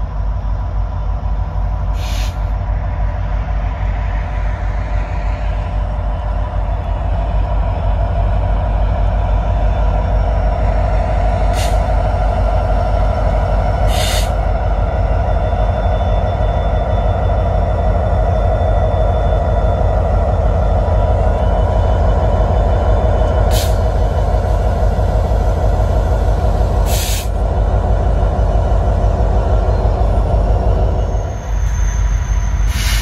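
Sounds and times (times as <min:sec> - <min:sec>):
diesel locomotives passing: 0:00.0 - 0:33.0
air hissing: 0:26.9 - 0:27.4.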